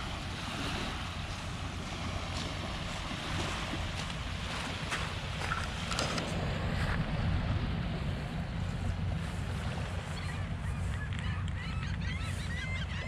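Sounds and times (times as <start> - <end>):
small waves lapping: 0.0 - 13.0
wind rumbling on microphone: 0.0 - 13.0
birds calling: 8.9 - 13.0.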